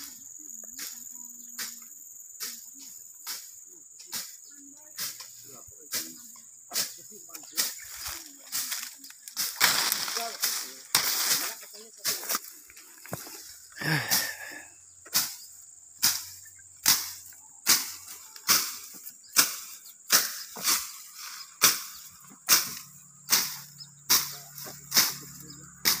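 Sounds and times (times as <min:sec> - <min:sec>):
blade slashing tall grass: 0:07.6 - 0:12.5, 0:16.0 - 0:26.0.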